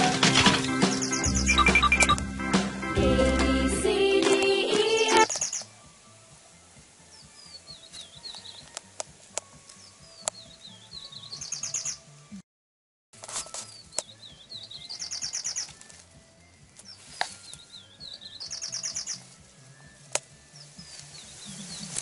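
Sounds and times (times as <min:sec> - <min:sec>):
bird whistling with high trill: 0:00.8 - 0:02.1, 0:05.1 - 0:05.6, 0:10.0 - 0:12.0, 0:13.7 - 0:16.0, 0:17.4 - 0:19.3.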